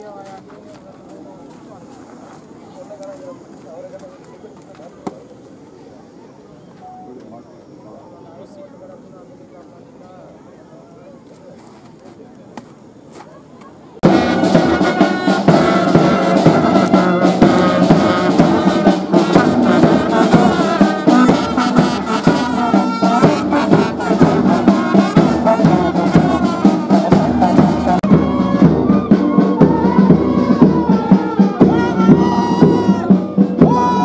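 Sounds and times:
brass band playing a march: 0:14.0 - 0:34.0
steady drum beat: 0:14.0 - 0:34.0.

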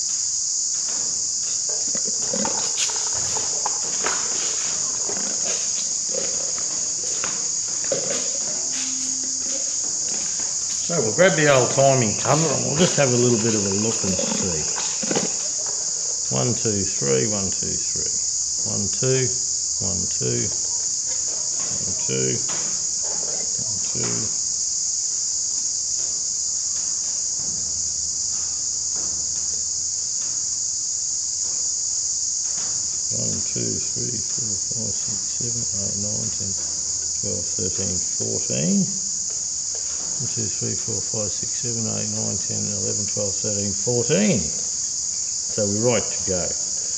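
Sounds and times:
high-pitched insect chorus: 0:00.0 - 0:46.9
man muttering: 0:07.8 - 0:09.5, 0:10.9 - 0:15.3, 0:33.2 - 0:36.6.

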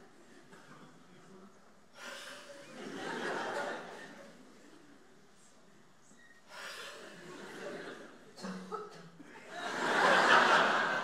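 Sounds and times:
audience laughing: 0:02.6 - 0:04.5, 0:07.0 - 0:11.0.

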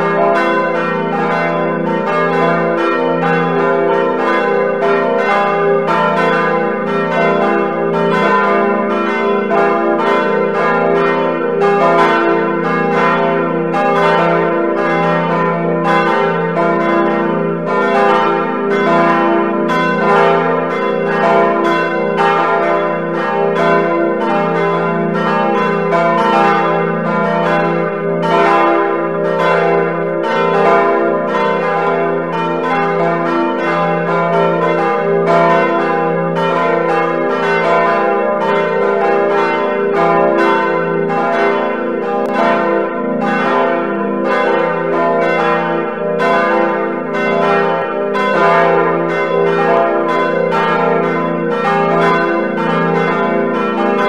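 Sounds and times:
church bells ringing: 0:00.0 - 0:54.0.

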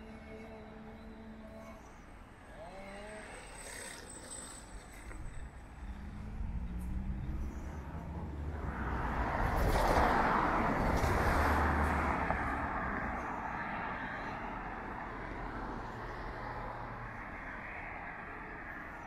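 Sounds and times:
car passing by: 0:03.7 - 0:19.0.

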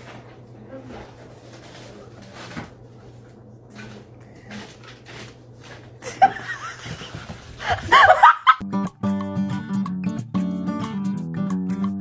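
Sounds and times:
plastic bag rustling: 0:00.0 - 0:08.2.

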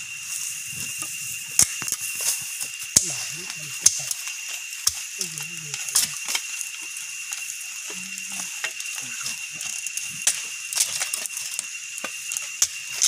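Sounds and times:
dry grass burning crackling: 0:00.0 - 0:13.0
low voice hum: 0:03.0 - 0:04.3, 0:05.1 - 0:06.3, 0:07.8 - 0:10.2
steady high-pitched tone: 0:05.2 - 0:10.5.

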